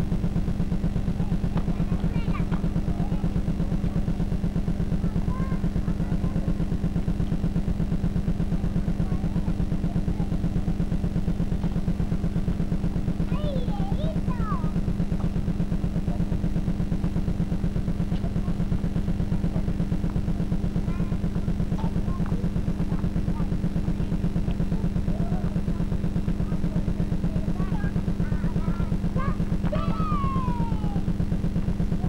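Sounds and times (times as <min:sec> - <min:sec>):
pulsing electrical buzz: 0:00.0 - 0:32.0
children's voices calling: 0:01.2 - 0:03.4, 0:13.3 - 0:14.8, 0:21.8 - 0:31.1.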